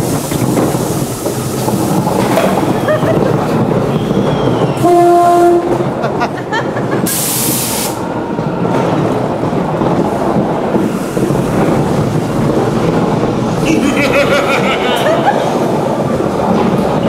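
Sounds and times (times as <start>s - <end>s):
ride car rumbling on track: 0.0s - 17.0s
horn-like tone: 4.8s - 5.8s
loud hiss: 7.0s - 8.0s.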